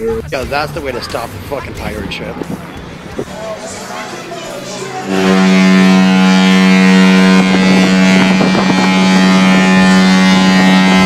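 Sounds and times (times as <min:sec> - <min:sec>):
ship's horn long blast: 0:02.5 - 0:11.0.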